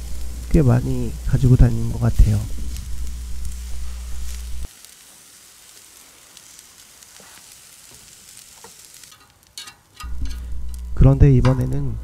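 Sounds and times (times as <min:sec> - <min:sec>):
low hum: 0:00.0 - 0:04.7, 0:10.0 - 0:12.0
meat sizzling on a griddle: 0:00.0 - 0:11.9
metal turner scraping and tapping: 0:08.6 - 0:10.8.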